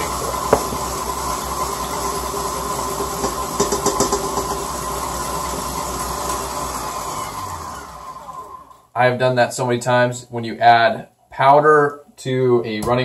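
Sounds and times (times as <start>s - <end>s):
electric stand mixer running: 0.0s - 8.7s.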